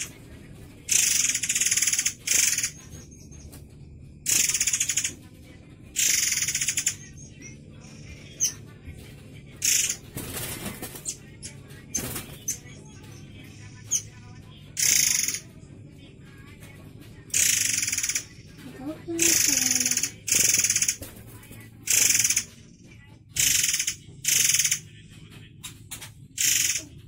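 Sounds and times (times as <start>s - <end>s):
bird harsh rasping calls: 0.9s - 3.4s, 4.2s - 5.2s, 6.0s - 8.6s, 9.6s - 12.6s, 14.8s - 15.5s, 17.3s - 18.4s, 19.0s - 21.1s, 21.9s - 22.6s, 23.4s - 24.8s, 26.4s - 27.0s.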